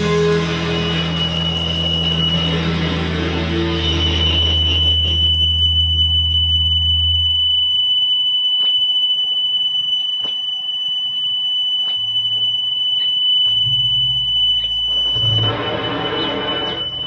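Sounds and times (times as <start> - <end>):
low sustained bass notes: 0.0 - 7.6
electric guitar feedback whine: 0.0 - 8.7, 11.8 - 17.0.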